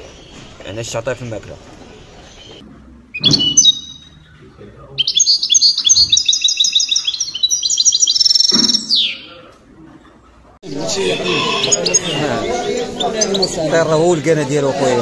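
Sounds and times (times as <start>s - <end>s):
songbird twittering: 2.2s - 9.4s, 11.0s - 13.7s.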